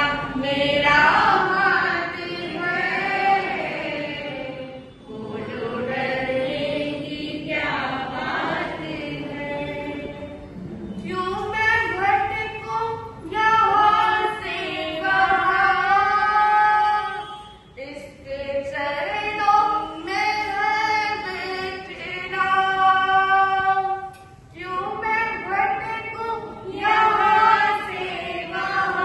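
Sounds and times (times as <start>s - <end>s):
woman singing unaccompanied: 11.0s - 29.0s.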